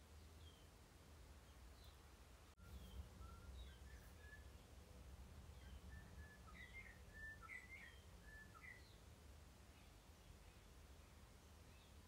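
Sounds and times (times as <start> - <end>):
faint whistled bird calls: 2.6 - 9.0.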